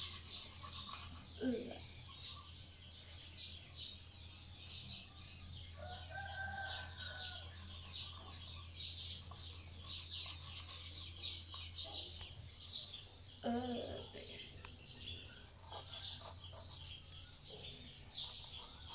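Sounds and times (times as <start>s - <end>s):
small birds chirping: 0.0s - 18.9s
rooster crowing: 5.8s - 7.6s.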